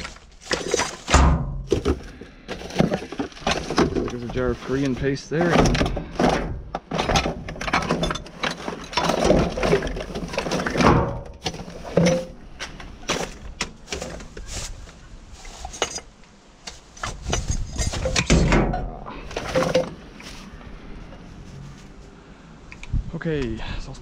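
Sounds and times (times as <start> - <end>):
rummaging through rubbish bin: 0.0 - 22.0.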